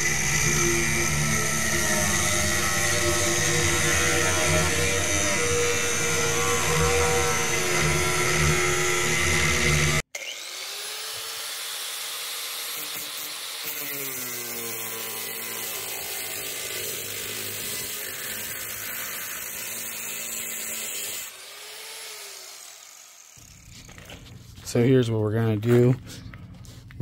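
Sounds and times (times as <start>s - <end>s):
grinder motor winding down: 0.0s - 24.1s
angle grinder grinding metal: 0.0s - 24.4s.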